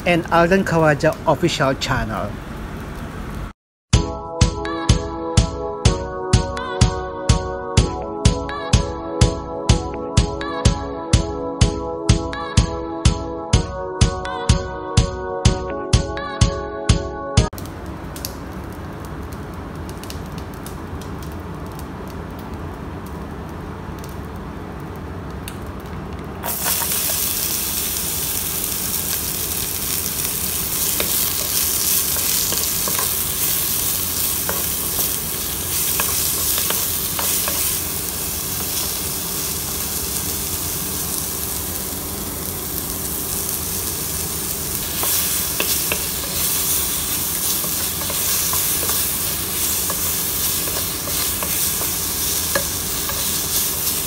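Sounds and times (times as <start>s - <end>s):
onions sizzling in hot oil: 26.4s - 54.0s
wooden spatula scraping wok: 44.8s - 54.0s.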